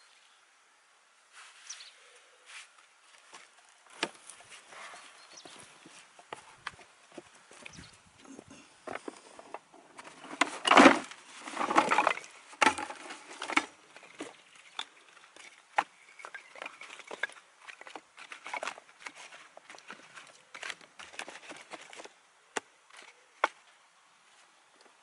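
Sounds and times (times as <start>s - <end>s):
wood clattering from bucket: 8.9s - 22.1s.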